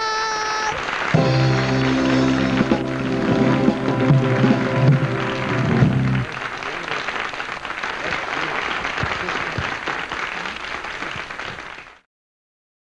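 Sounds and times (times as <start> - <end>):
applause: 0.0 - 12.1
held music chord: 1.2 - 6.3.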